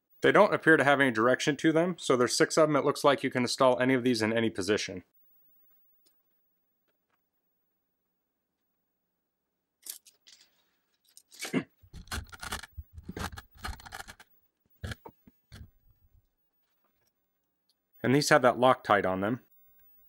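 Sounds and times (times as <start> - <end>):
metal parts scraping and rattling: 9.8 - 14.2.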